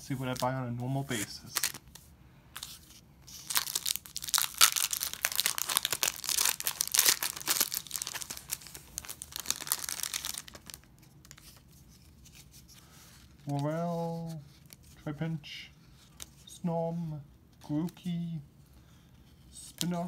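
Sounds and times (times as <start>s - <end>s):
foil wrapper tearing and crinkling: 3.3s - 11.5s.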